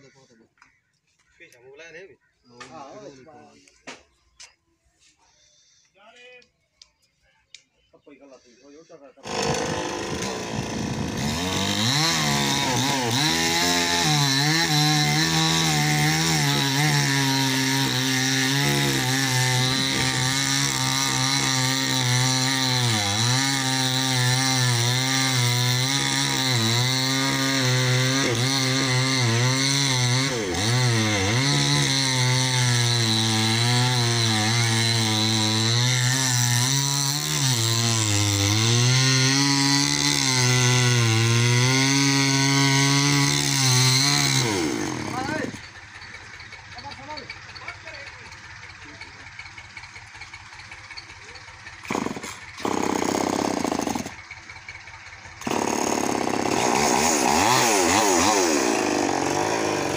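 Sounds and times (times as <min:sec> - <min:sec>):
chainsaw cutting into tree trunk: 0:09.2 - 0:46.4, 0:49.9 - 0:54.5, 0:55.2 - 0:59.9.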